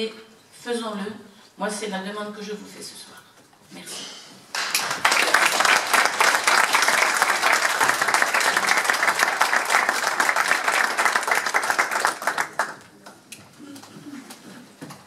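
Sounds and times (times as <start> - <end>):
group applauding: 4.5 - 13.9.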